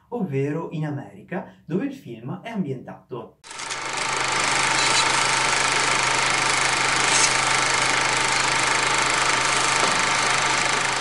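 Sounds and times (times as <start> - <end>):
film projector whirring and clattering: 3.5 - 11.0.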